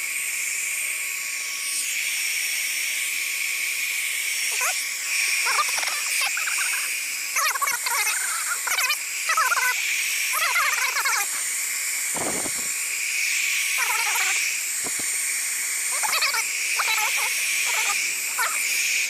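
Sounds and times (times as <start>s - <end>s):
heat gun whining: 9.0s - 19.0s.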